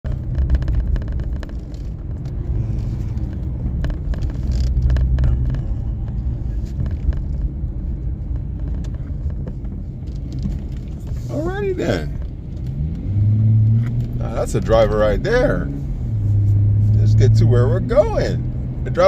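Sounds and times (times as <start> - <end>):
car engine and tyre rumble: 0.0 - 19.0
small clicks and knocks: 0.1 - 11.2.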